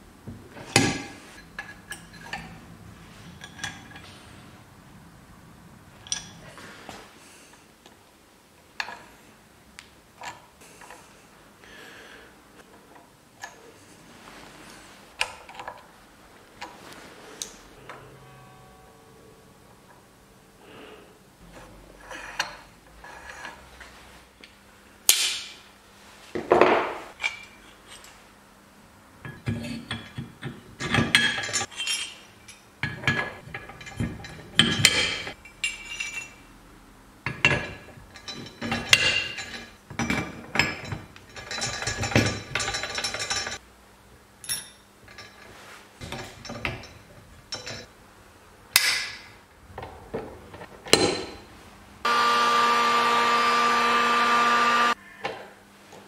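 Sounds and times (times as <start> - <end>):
metal gears clinking and clanking: 29.3 - 36.5, 37.3 - 43.6.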